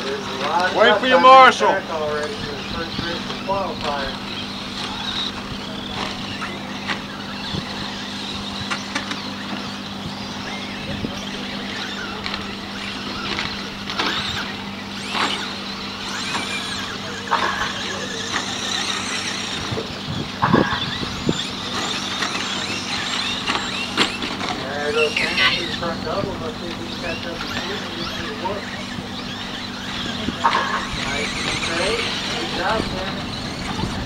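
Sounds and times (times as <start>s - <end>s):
electric motors whining: 0.0s - 34.0s
steady low hum: 0.0s - 34.0s.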